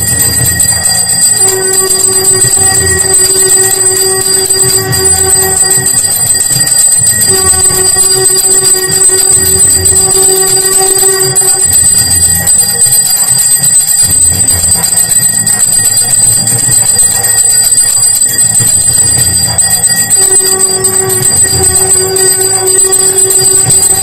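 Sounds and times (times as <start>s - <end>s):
long held note with overtones: 0.0s - 12.7s, 18.8s - 24.0s
bells clanging: 0.0s - 24.0s.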